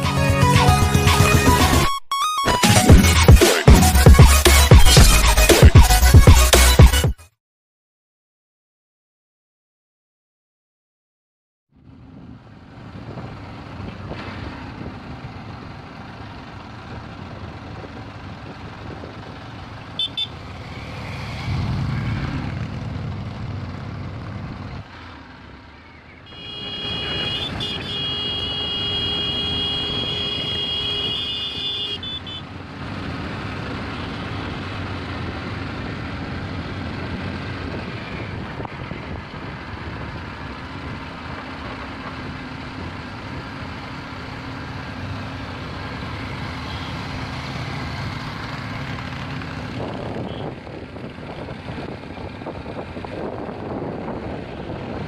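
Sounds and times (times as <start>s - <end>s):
vehicle engine: 11.7s - 55.0s
horn toots: 20.0s - 20.5s, 26.3s - 32.5s, 46.6s - 47.2s, 50.0s - 50.6s
long horn blast: 26.3s - 32.4s
wind noise: 37.0s - 41.0s, 49.6s - 55.0s.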